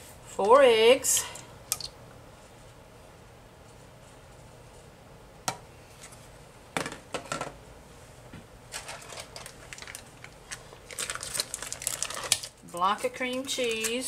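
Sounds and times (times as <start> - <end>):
kitchen items clattering: 8.7 - 10.0.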